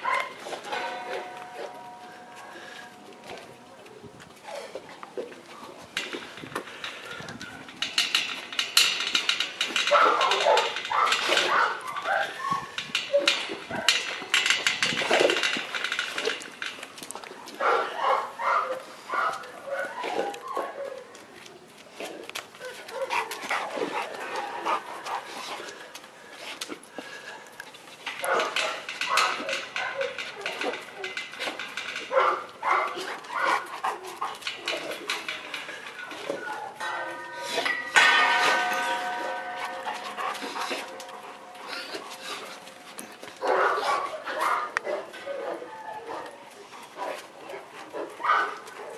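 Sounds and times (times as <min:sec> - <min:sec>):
metal clinking and rattling: 0:00.0 - 0:03.8, 0:04.7 - 0:20.8, 0:22.0 - 0:45.5
dogs panting: 0:21.9 - 0:48.9.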